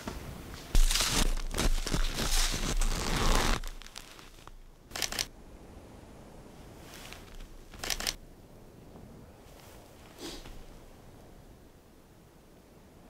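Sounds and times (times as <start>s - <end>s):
clothing rustling: 0.0s - 4.6s
footsteps crunching in snow: 0.6s - 4.6s.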